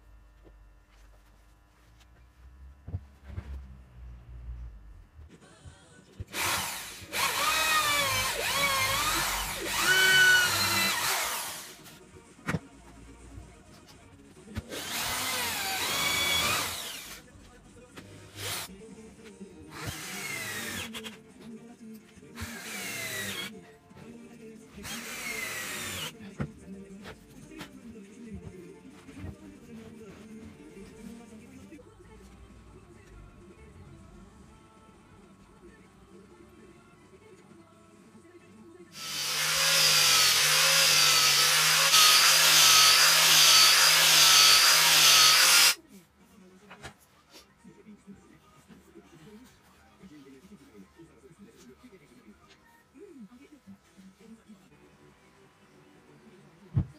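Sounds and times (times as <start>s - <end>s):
background music: 4.7s - 56.9s
electric drill driving screws into wood: 6.3s - 11.8s, 14.6s - 17.2s, 19.7s - 21.1s, 22.4s - 23.5s, 24.8s - 26.1s, 39.0s - 45.8s
angle grinder sanding wood: 39.0s - 45.8s.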